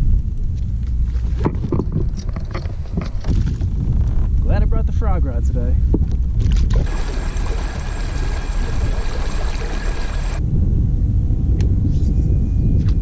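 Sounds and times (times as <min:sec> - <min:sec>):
steady low rumble: 0:00.0 - 0:13.0
water rushing past hull: 0:06.5 - 0:10.4.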